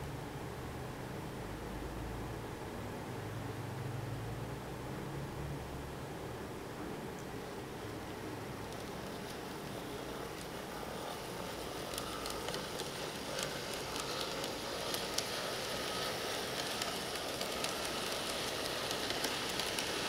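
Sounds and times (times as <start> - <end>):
model locomotive motor whirring: 8.6 - 20.0
wheels clicking on rails: 8.6 - 20.0.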